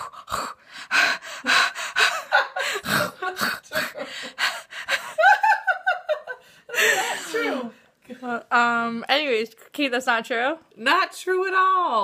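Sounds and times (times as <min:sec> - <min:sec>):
person gasping and snorting: 0:00.0 - 0:05.1.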